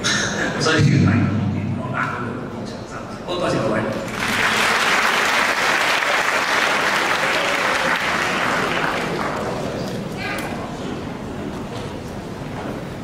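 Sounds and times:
audience applauding: 4.1s - 9.8s.

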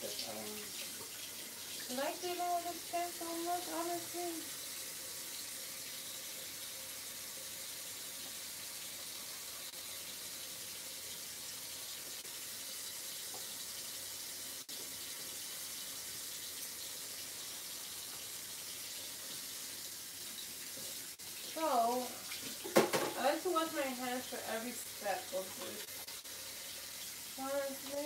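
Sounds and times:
tap running into sink: 22.3s - 23.4s.

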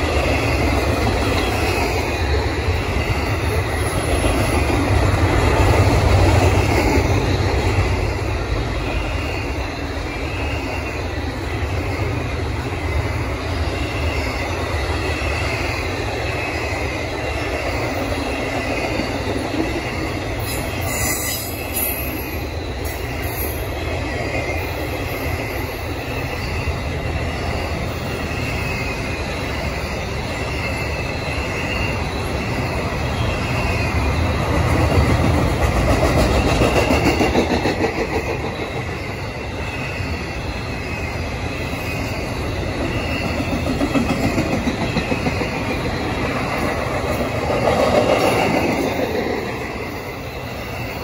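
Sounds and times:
freight train wheels rumbling: 0.0s - 51.0s.

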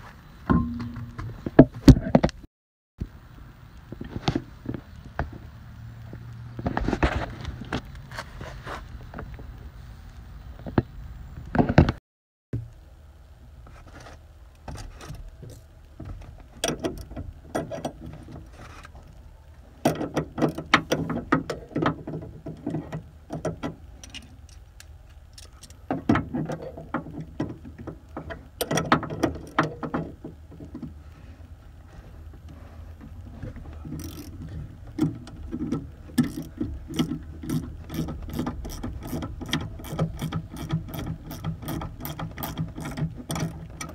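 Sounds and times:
ratchet clicks: 33.8s - 43.9s.

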